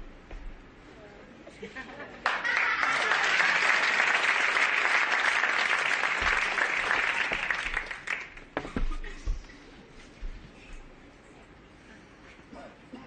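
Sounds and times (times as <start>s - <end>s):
audience applause: 2.2s - 8.6s.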